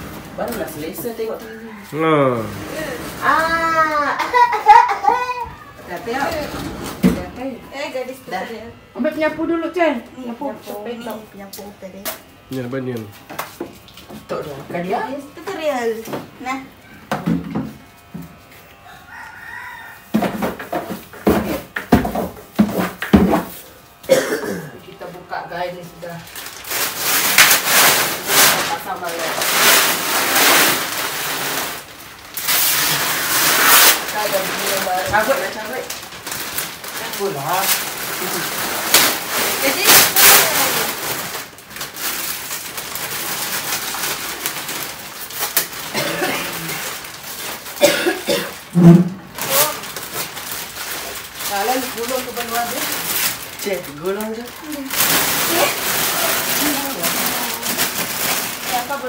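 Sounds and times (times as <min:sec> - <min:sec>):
rooster crowing: 0:01.2 - 0:02.7, 0:18.8 - 0:20.2
plastic sheeting rustling: 0:26.0 - 0:59.0.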